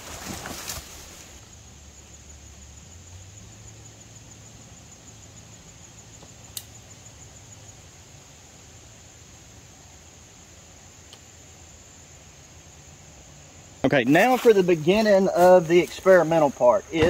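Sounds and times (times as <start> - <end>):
footsteps crunching in dry leaves: 0.0 - 1.4, 14.0 - 16.7
low outdoor background: 0.0 - 17.0.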